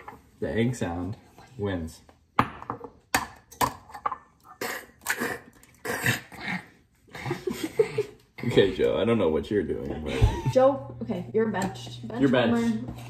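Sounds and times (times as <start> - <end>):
throaty coughing noises: 4.5 - 6.7.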